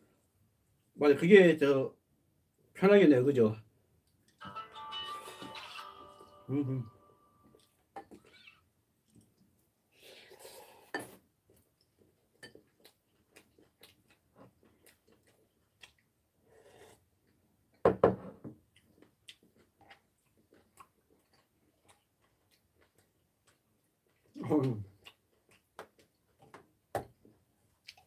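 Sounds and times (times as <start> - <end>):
mouth noises of eating: 5.2 - 17.4, 18.7 - 26.5
slurp from a bowl: 10.0 - 11.2, 16.5 - 17.0.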